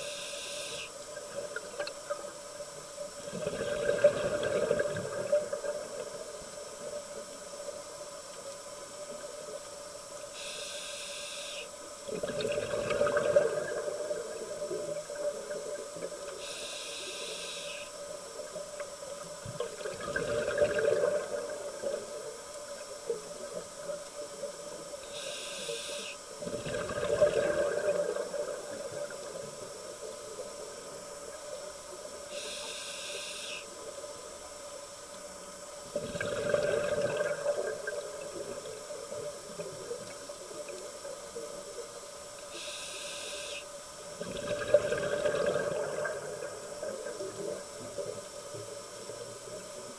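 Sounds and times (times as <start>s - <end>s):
regulator inhale hiss: 0.0s - 1.4s, 10.1s - 11.9s, 16.2s - 18.6s, 24.8s - 26.6s, 32.1s - 34.1s, 42.4s - 44.2s
faint steady hum: 0.0s - 49.9s
exhaled bubbles rushing: 3.3s - 5.8s, 12.1s - 14.4s, 19.6s - 21.9s, 26.4s - 28.8s, 35.9s - 38.2s, 44.2s - 46.6s.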